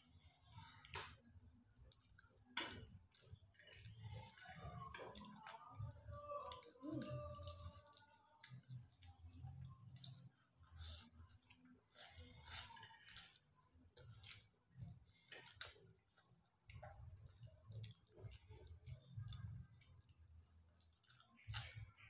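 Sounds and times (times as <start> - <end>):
spaghetti slurping and chewing: 0.8 - 22.0.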